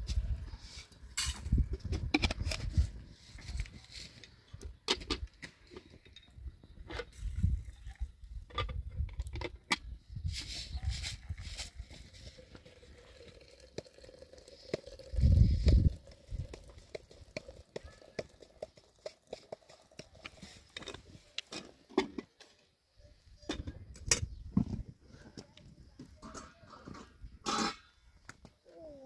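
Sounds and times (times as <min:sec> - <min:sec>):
kettle and teapot clinking: 0:11.2 - 0:22.4.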